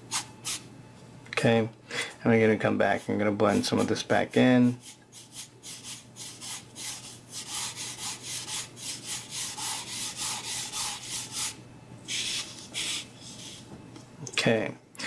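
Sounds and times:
hand rubbing pastel on paper: 0:04.8 - 0:13.7.

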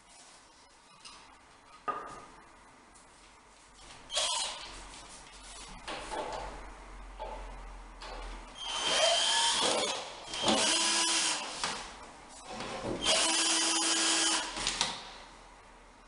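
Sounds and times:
cordless drill whining: 0:08.6 - 0:11.5, 0:13.0 - 0:14.6.

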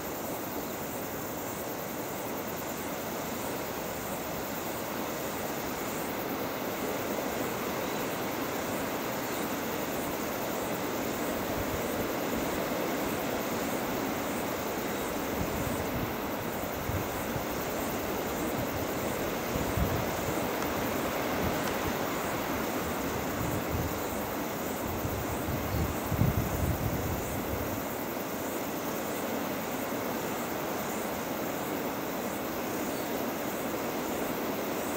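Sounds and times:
wind bumps on microphone: 0:24.9 - 0:27.7.

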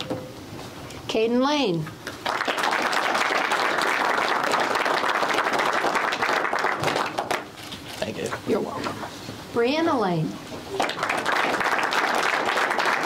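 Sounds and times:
audience clapping: 0:02.0 - 0:07.6, 0:10.7 - 0:13.0.

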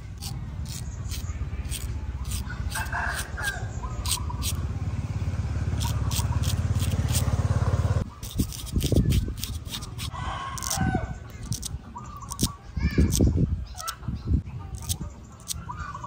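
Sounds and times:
razor scraping stubble: 0:00.0 - 0:04.7, 0:05.7 - 0:14.0, 0:14.7 - 0:15.7
low engine rumble: 0:00.0 - 0:08.2
birds chirping: 0:00.0 - 0:16.0.

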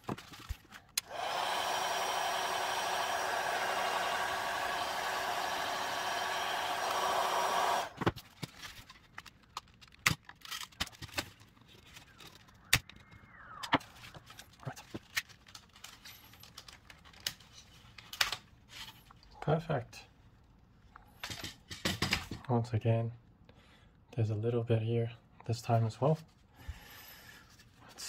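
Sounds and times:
heat gun blowing: 0:01.0 - 0:08.1.

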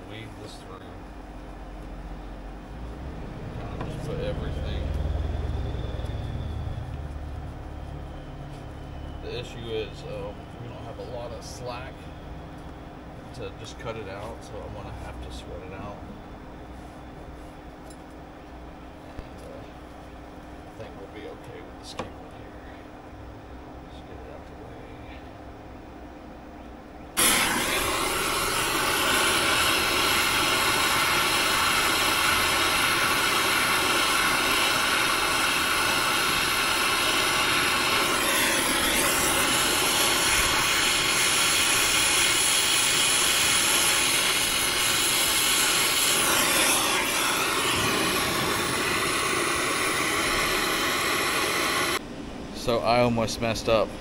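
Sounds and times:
torch flame hissing: 0:27.2 - 0:52.0.

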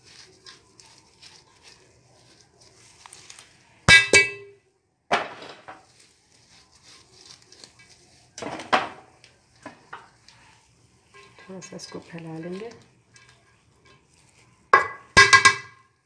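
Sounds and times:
rice scraping and rustling in pot: 0:00.0 - 0:03.8, 0:05.4 - 0:15.2
utensil clanking on metal pot: 0:03.9 - 0:04.5, 0:11.1 - 0:14.1, 0:14.7 - 0:15.8.

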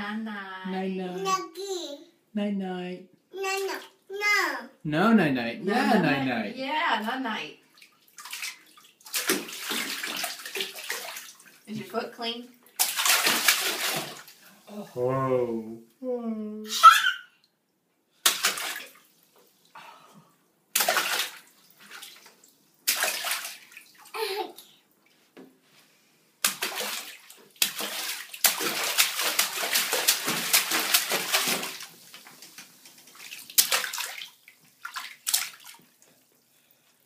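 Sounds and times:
bathwater splashing: 0:07.6 - 0:14.6, 0:18.1 - 0:25.2, 0:26.4 - 0:37.0.

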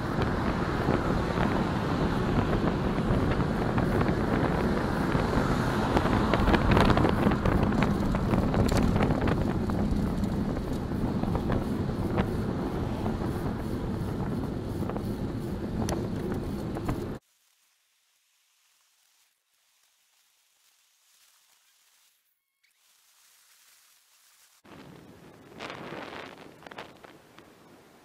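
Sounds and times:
car passing: 0:00.0 - 0:17.2
wind buffeting microphone: 0:00.0 - 0:17.2.

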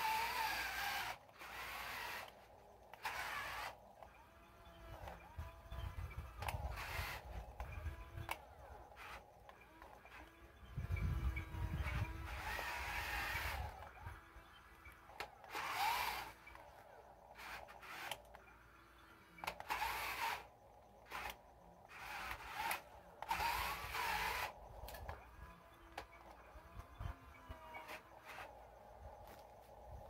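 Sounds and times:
electric drive motors whining: 0:00.0 - 0:30.0.

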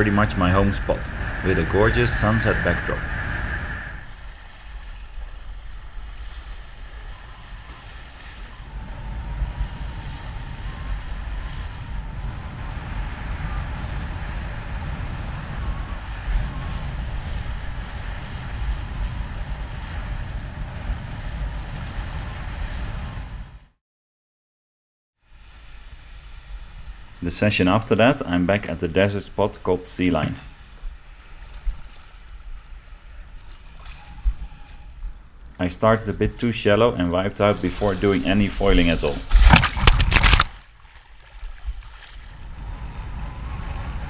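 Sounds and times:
water rushing and hissing: 0:00.0 - 0:13.2, 0:25.3 - 0:42.6
wind buffeting microphone: 0:00.0 - 0:23.7, 0:30.3 - 0:44.0.

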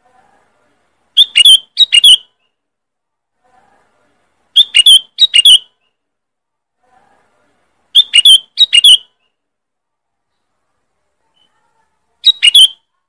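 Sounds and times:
bulbul calling: 0:01.2 - 0:02.4, 0:04.5 - 0:05.9, 0:07.9 - 0:09.3, 0:12.2 - 0:12.9.

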